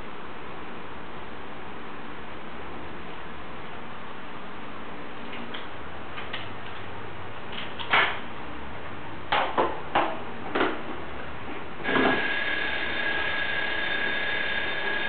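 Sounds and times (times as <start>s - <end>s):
sharp knocks and clatters: 9.3s - 11.0s.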